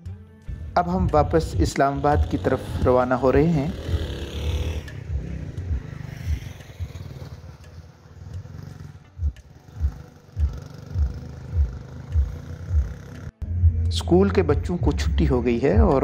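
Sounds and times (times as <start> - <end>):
motorcycle engine rumble: 0.5 - 13.4.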